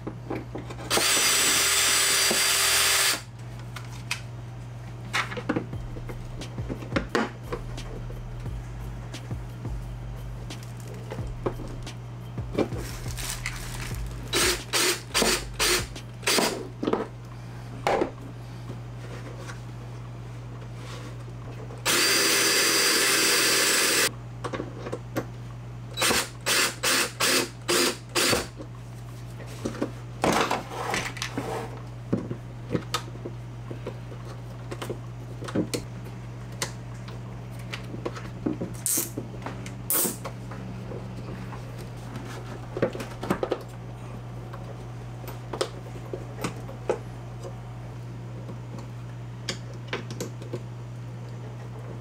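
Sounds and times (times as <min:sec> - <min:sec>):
steady low hum: 0:00.0 - 0:52.0
cordless drill bursts: 0:00.9 - 0:03.3, 0:14.3 - 0:16.5, 0:21.9 - 0:24.1, 0:26.0 - 0:28.5.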